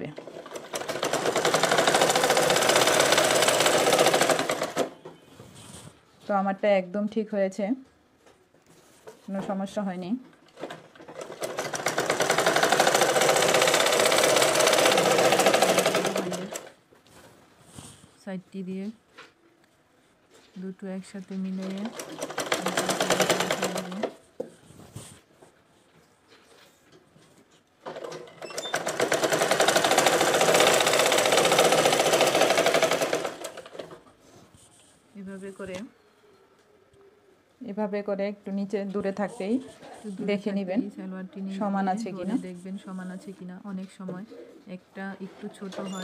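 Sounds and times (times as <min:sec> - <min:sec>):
sewing machine stitching: 0:00.0 - 0:05.0, 0:10.5 - 0:16.8, 0:21.4 - 0:24.2, 0:27.8 - 0:34.0.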